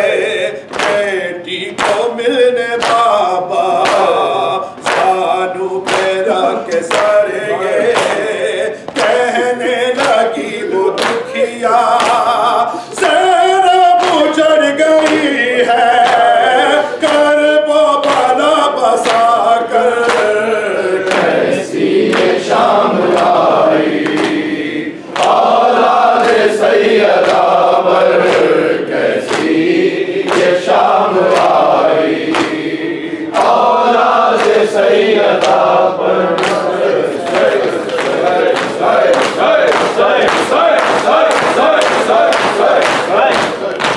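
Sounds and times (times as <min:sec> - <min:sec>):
men singing a lament together: 0:00.0 - 0:43.9
chest-beating slaps: 0:00.7 - 0:01.0, 0:04.8 - 0:05.2, 0:05.8 - 0:07.2, 0:10.9 - 0:12.3, 0:21.0 - 0:21.4, 0:24.0 - 0:25.6, 0:27.2 - 0:27.6, 0:28.2 - 0:28.6, 0:29.2 - 0:31.6, 0:32.2 - 0:43.9.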